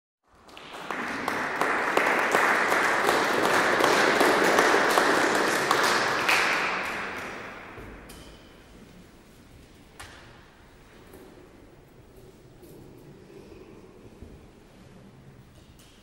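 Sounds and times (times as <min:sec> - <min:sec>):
audience applauding: 0:00.2 - 0:07.7.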